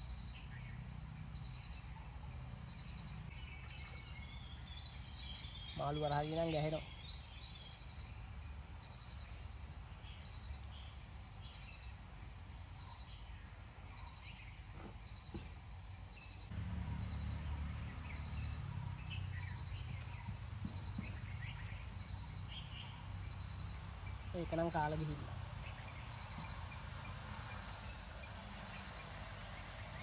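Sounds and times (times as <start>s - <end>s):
insects trilling: 4.2s - 30.0s
bird chirps: 16.2s - 29.1s.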